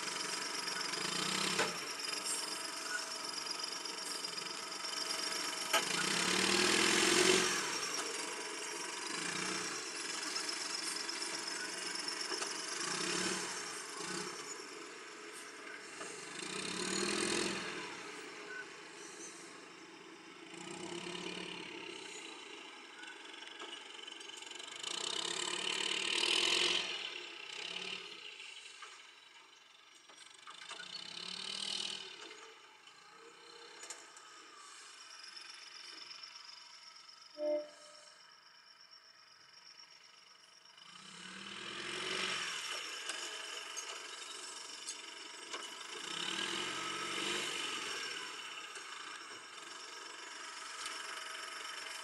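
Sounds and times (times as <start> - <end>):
machine engine revving: 0.0 - 23.0, 23.6 - 28.8, 40.8 - 52.0.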